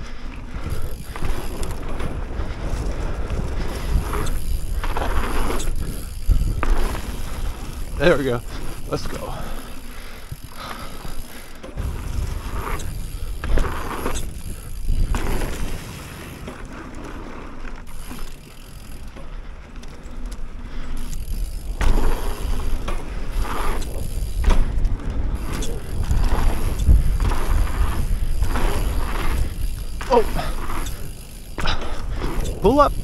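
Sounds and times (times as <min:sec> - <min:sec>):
wind rumble on microphone: 0:00.0 - 0:08.9, 0:11.8 - 0:16.3, 0:21.2 - 0:33.0
bike tyres on dirt: 0:00.0 - 0:33.0.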